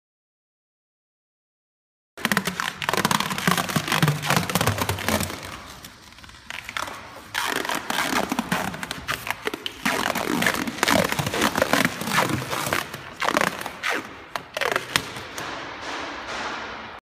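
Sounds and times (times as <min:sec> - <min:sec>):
rubber coating peeling crackle: 0:02.2 - 0:15.4.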